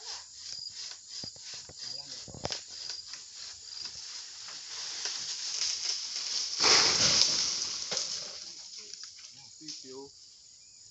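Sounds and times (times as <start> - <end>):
branch crashing through leaves: 3.8 - 9.3.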